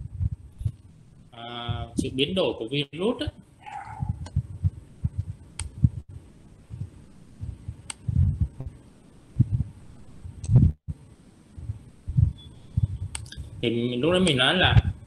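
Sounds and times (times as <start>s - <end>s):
muffled low thumps: 0.0s - 2.3s, 3.4s - 15.0s
computer mouse clicks: 13.1s - 13.4s.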